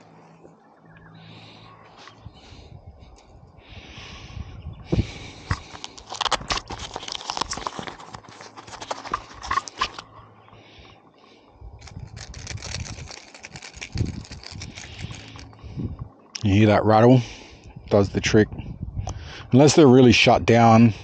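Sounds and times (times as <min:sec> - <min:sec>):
fishing lure rattle clicking: 0:11.8 - 0:15.5.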